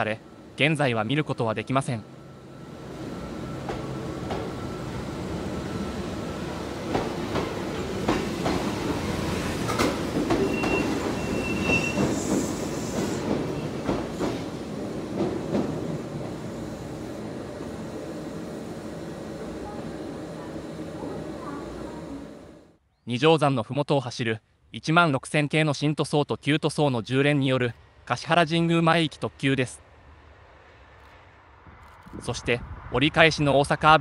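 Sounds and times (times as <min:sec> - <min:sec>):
train rumble: 0:00.0 - 0:22.8
train wheels knocking over rail joints: 0:06.9 - 0:14.5
high-pitched wheel squeal: 0:10.4 - 0:12.9.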